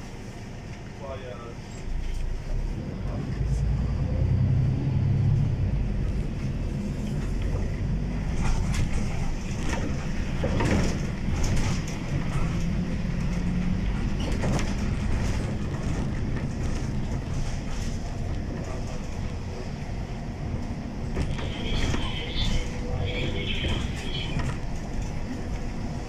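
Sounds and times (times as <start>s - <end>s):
bus engine and road rumble: 0.0s - 26.0s
interior rattles: 6.3s - 26.0s.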